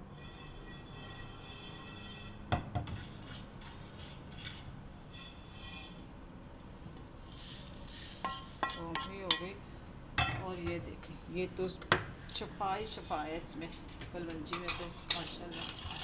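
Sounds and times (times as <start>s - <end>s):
wooden spatula scraping pan: 14.5s - 16.0s.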